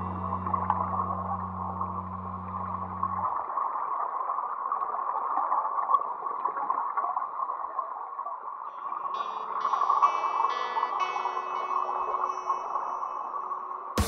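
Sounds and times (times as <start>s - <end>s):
music: 0.0s - 3.2s, 8.7s - 14.0s.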